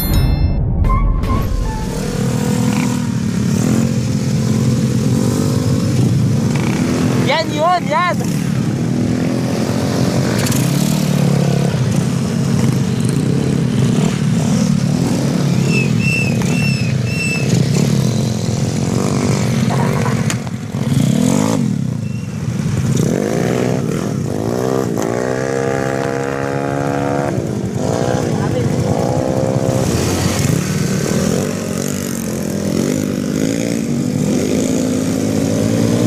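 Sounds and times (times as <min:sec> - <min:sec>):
short high chirps: 0:00.0 - 0:02.7
scooter engines running: 0:02.2 - 0:36.0.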